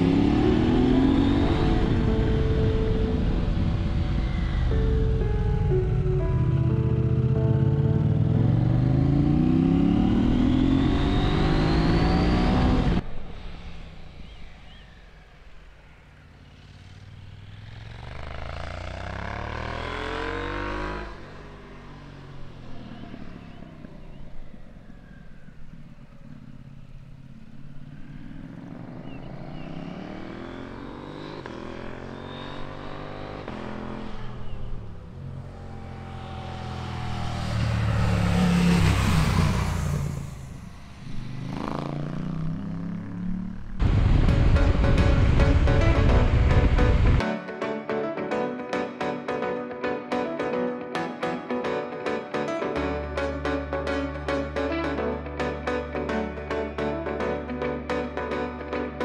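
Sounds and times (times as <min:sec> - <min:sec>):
motorcycle engine revving: 0:00.0 - 0:05.0, 0:06.7 - 0:47.2.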